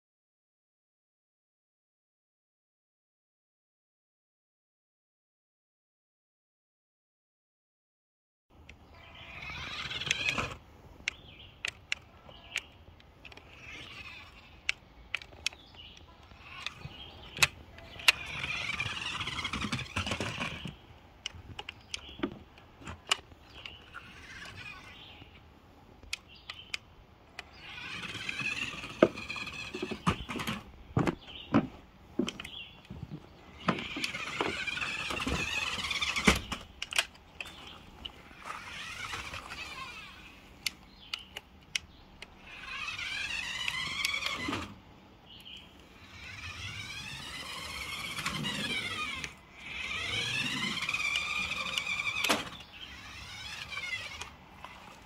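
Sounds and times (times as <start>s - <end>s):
toy car electric motor whining: 8.8s - 10.6s, 11.6s - 20.8s, 22.8s - 25.3s, 27.3s - 30.7s, 33.5s - 41.4s, 42.2s - 44.8s, 45.5s - 55.0s.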